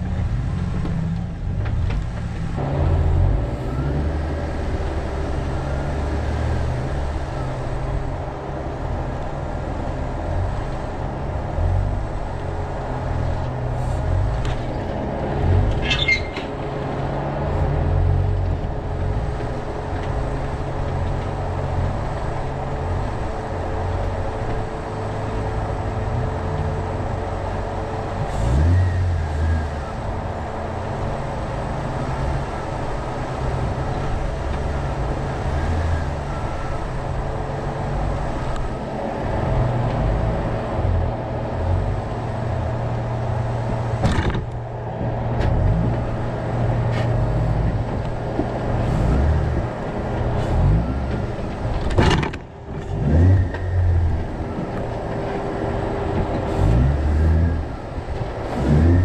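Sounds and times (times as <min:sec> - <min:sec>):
car engine rumbling: 0:00.0 - 0:59.0
engine revving: 0:01.6 - 0:59.0
high squeak: 0:15.8 - 0:16.6.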